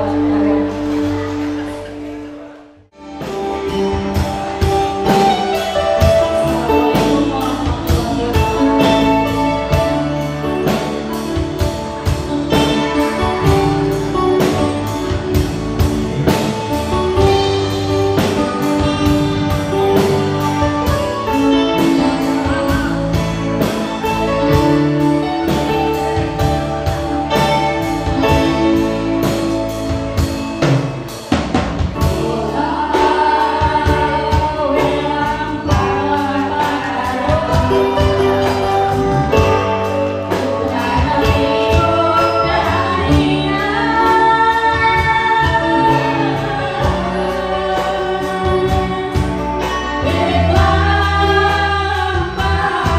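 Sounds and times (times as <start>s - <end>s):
keyboard: 0.0s - 52.9s
drum kit beat: 3.0s - 52.9s
women singing: 5.1s - 10.2s, 32.0s - 39.7s, 40.3s - 52.9s.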